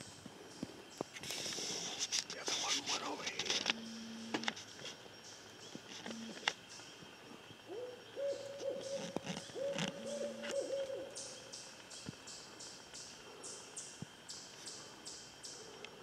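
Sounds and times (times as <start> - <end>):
owl hooting: 7.6 - 11.7.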